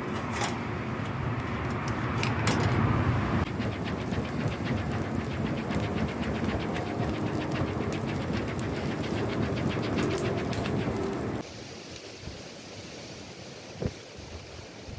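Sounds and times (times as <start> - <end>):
hand fan flapping: 1.5 - 11.4
steady rushing background: 3.4 - 11.4.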